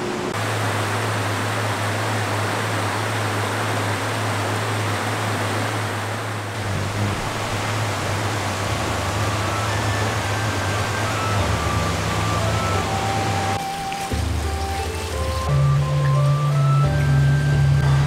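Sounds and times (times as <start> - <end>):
low steady hum: 0.0 - 13.6
flowing water rushing: 0.0 - 18.0.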